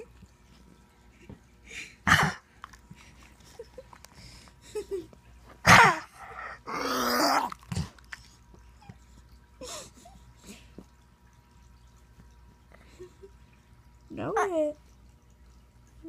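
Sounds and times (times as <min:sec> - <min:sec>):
dog coughing: 0:02.0 - 0:02.5, 0:05.6 - 0:06.1.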